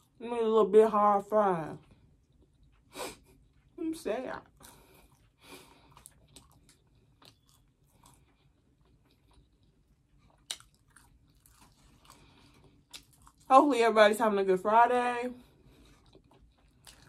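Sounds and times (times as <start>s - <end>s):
person crunching fries: 4.6s - 13.5s, 15.8s - 17.0s.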